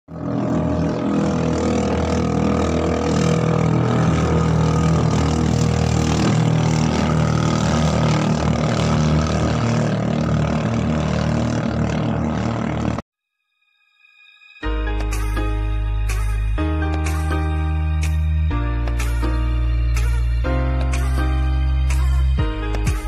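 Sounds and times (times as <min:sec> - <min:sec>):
boat engine running: 0:00.1 - 0:13.0.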